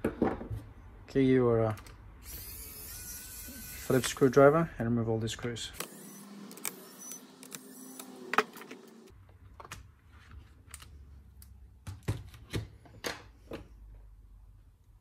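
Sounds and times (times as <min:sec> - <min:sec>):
electric screwdriver running: 0:02.2 - 0:04.2, 0:05.8 - 0:09.1.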